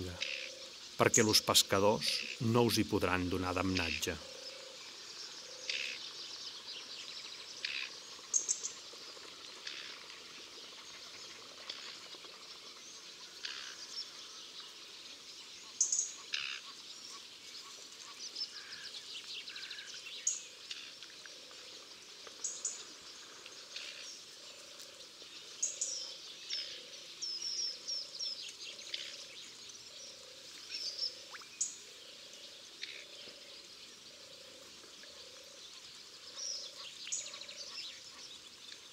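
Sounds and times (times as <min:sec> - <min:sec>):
low repeated frog call: 0:00.0 - 0:06.0, 0:07.5 - 0:08.8, 0:09.6 - 0:10.1, 0:13.2 - 0:13.9, 0:15.7 - 0:16.8
frogs croaking: 0:00.0 - 0:38.9.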